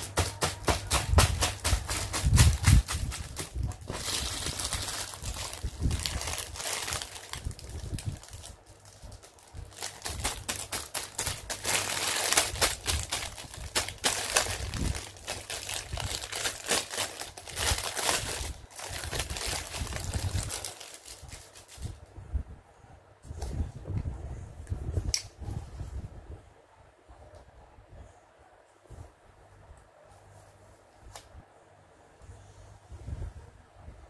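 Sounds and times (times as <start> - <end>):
plastic bag crinkling: 0.0 - 22.0.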